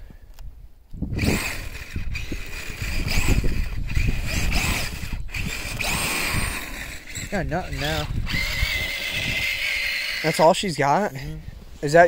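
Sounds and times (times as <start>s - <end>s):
electric motor whining in revs: 1.1s - 10.7s.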